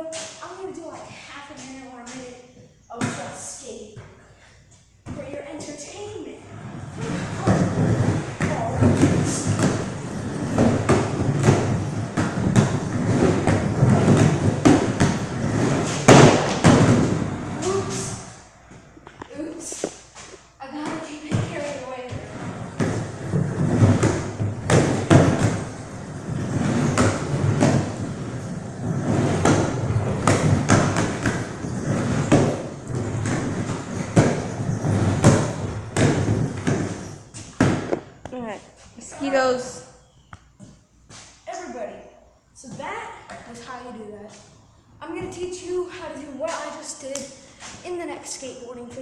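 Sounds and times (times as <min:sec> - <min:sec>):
skateboard wheels rolling on wood: 0:05.1 - 0:38.3
skateboard clacks and thuds: 0:07.0 - 0:18.0, 0:20.8 - 0:38.3.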